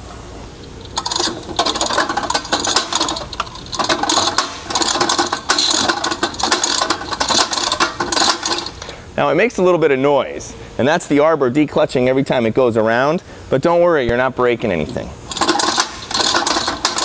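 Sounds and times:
hose reel spring clicking rattle: 0.6s - 9.0s, 14.9s - 17.0s.

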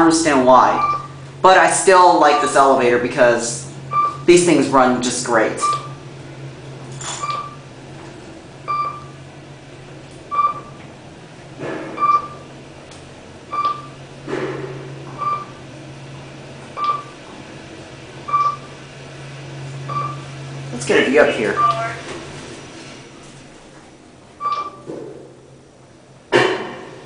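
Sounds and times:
elevator ride low hum: 0.0s - 27.0s
short electronic beeps: 0.8s - 1.1s, 3.9s - 4.2s, 5.6s - 6.0s, 8.7s - 9.1s, 10.3s - 10.8s, 12.0s - 12.4s, 13.5s - 14.0s, 15.2s - 15.5s, 18.3s - 18.7s, 19.9s - 20.2s, 21.5s - 22.0s, 24.4s - 24.9s.

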